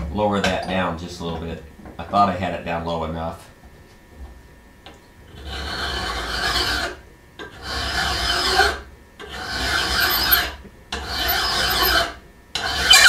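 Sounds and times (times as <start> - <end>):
file ringing on steel cutter: 7.6 - 13.0.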